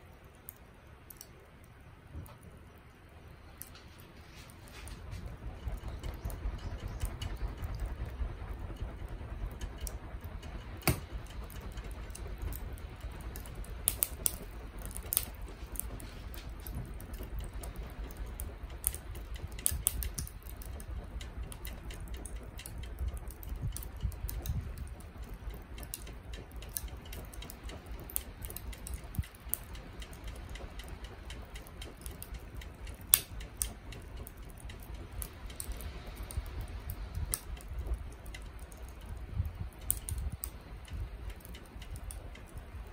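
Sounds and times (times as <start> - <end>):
charcoal crackling and popping: 0.0 - 42.9
low steady rumble: 0.0 - 42.9.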